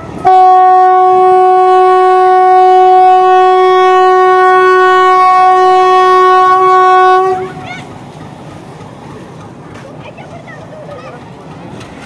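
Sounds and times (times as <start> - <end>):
locomotive air horn blast: 0.2 - 7.6.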